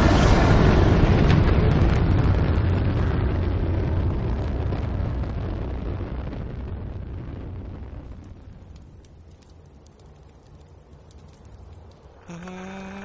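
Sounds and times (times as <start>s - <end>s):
rocket engines rumbling roar: 0.0s - 9.5s
sharp crackles: 0.0s - 13.0s.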